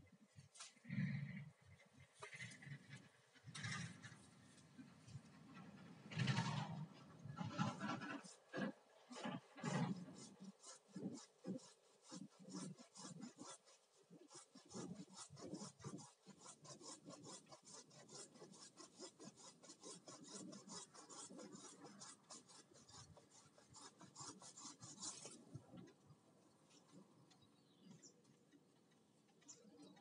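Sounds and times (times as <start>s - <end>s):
rasping strokes on bamboo: 7.4s - 26.0s.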